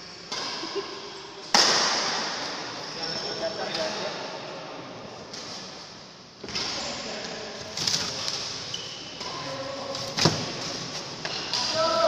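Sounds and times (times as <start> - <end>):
rackets hitting shuttlecock: 1.4 - 2.6.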